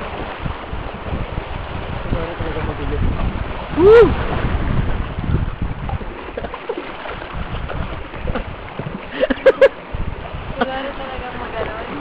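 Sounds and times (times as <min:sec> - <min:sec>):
river water rushing and splashing: 0:00.0 - 0:12.0
wind buffeting microphone: 0:00.0 - 0:12.0.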